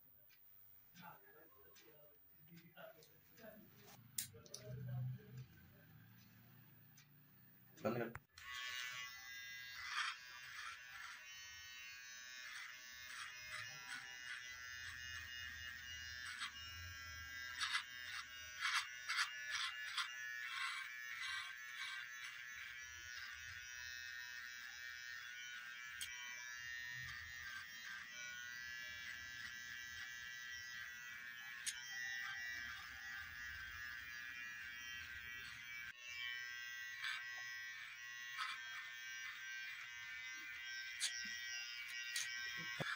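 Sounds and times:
electric hair trimmer buzzing: 8.3 - 42.9.

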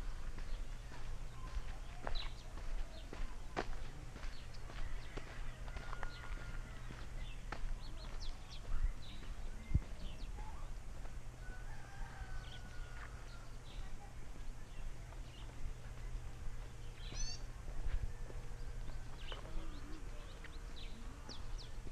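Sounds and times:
small birds chirping: 0.0 - 11.2, 12.2 - 21.9
footsteps on dirt path: 0.0 - 21.9.

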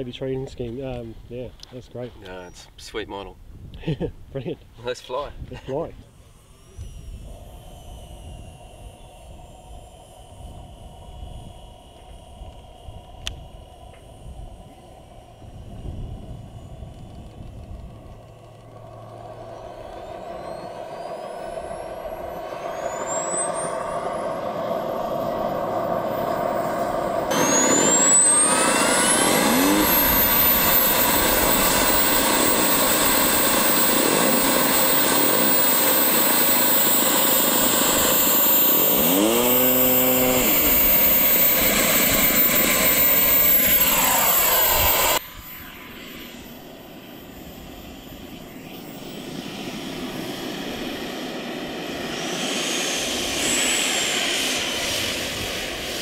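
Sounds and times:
model jet turbine whine: 4.8 - 56.0.

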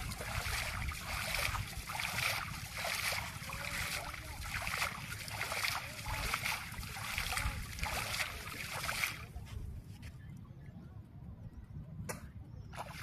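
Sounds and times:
water splashing: 0.0 - 9.4
steady low rumble: 0.0 - 12.7.

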